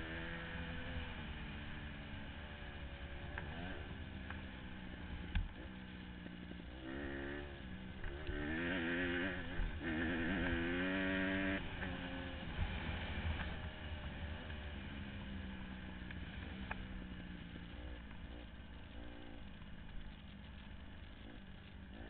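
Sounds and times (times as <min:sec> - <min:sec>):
dirt bike engine revving: 0:02.7 - 0:04.0, 0:06.7 - 0:13.4, 0:17.6 - 0:19.5.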